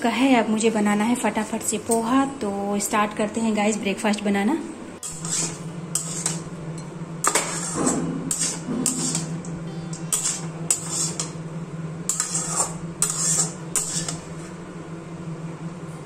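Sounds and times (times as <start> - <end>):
low hum: 4.6 - 16.0
metal spatula scraping pan: 5.0 - 6.6, 7.2 - 14.6.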